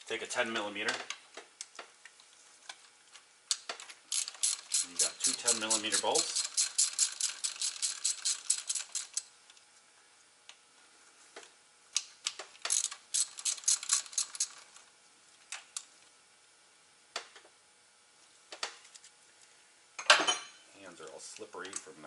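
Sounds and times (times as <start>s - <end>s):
hand ratchet clicking: 3.5s - 9.3s, 12.0s - 14.7s.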